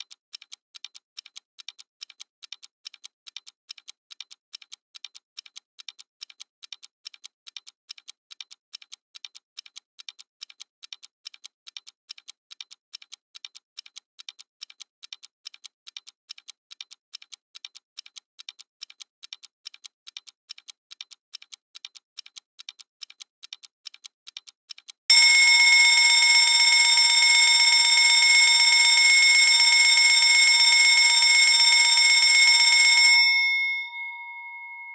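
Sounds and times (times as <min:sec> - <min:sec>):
stopwatch ticking: 0:00.0 - 0:34.9
alarm ringing: 0:25.1 - 0:34.9.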